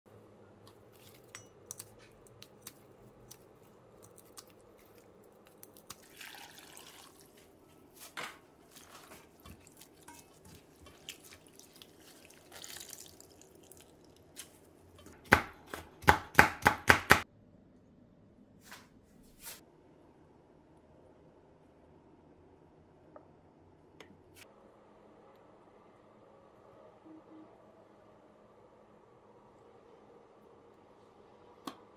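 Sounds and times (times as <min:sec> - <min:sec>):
food squeezed in water: 0:04.0 - 0:07.4, 0:08.7 - 0:14.5
water dripping: 0:04.0 - 0:07.5, 0:08.7 - 0:14.5.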